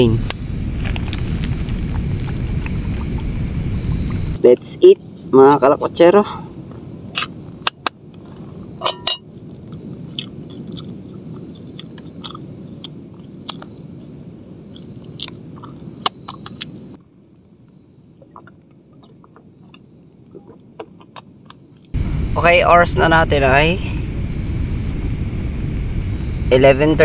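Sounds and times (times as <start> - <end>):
low background rumble: 0.0 - 27.0
chewing: 9.7 - 13.7, 14.7 - 16.8.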